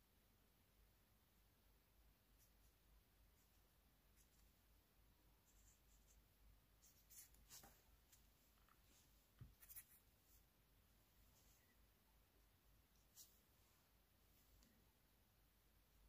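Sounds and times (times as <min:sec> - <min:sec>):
scratchy handling sounds: 0:06.8 - 0:10.5.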